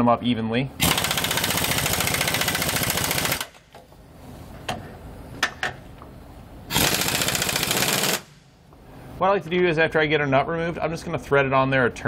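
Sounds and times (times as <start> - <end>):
impact wrench hammering: 0.8 - 3.6, 6.7 - 8.4.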